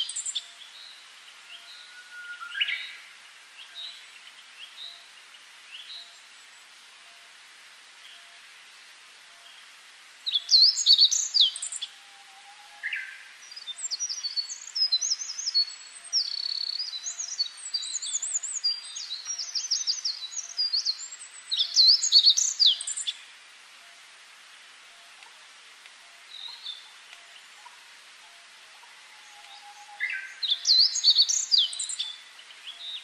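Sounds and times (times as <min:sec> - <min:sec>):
faint steady hiss: 0:00.0 - 0:33.0
songbird singing: 0:00.0 - 0:33.0.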